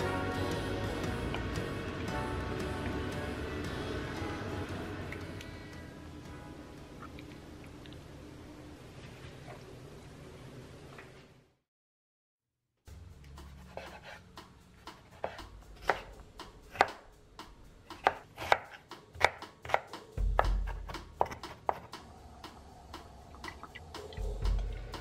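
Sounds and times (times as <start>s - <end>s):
knife chopping on wooden board: 13.5s - 14.2s, 15.0s - 16.1s, 16.7s - 17.0s, 18.0s - 21.9s.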